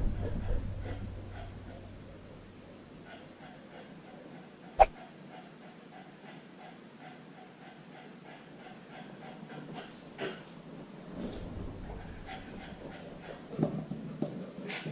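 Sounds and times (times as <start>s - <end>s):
puppy panting: 2.8s - 10.5s, 11.2s - 14.0s.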